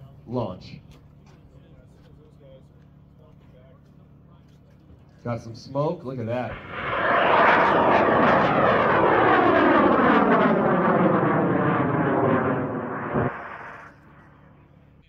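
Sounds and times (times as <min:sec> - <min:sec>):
rocket motor roaring: 0:06.5 - 0:14.3.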